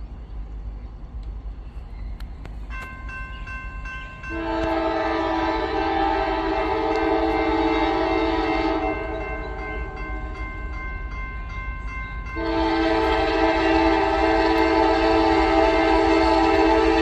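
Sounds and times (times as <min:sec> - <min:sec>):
crossing bell ringing: 0:02.6 - 0:17.0
locomotive air horn: 0:04.3 - 0:10.4, 0:12.4 - 0:17.0.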